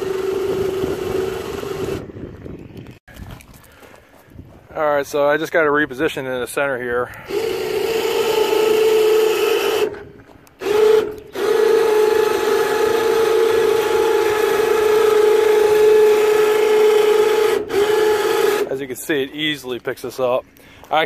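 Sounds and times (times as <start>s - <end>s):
electric winch motor whine: 0.0s - 2.4s, 7.2s - 18.7s.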